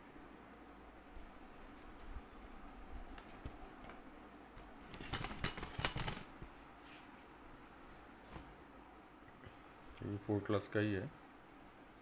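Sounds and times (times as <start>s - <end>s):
fabric and paper rustling: 4.8s - 7.1s.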